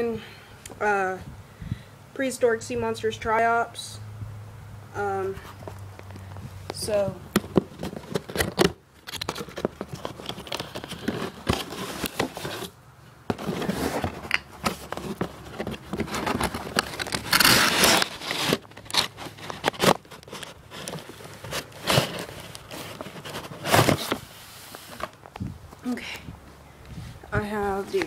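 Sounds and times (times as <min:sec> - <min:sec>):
cardboard and paper crinkling: 0:05.4 - 0:25.4
cardboard box being opened: 0:07.4 - 0:25.3
packaging rustling: 0:07.4 - 0:25.4.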